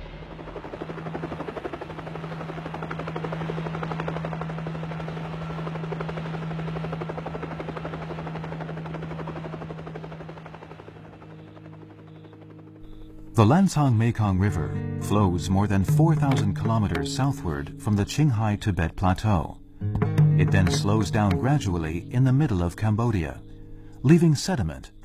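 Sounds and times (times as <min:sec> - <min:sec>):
helicopter rotor chop: 0:00.0 - 0:19.4
helicopter engine drone: 0:00.0 - 0:25.0.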